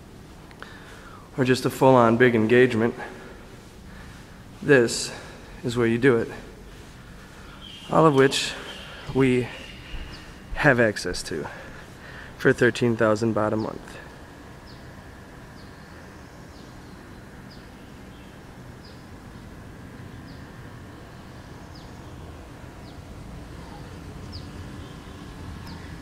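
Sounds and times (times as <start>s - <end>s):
low background noise: 0.0s - 26.0s
bird chirping: 4.9s - 12.3s, 13.0s - 26.0s.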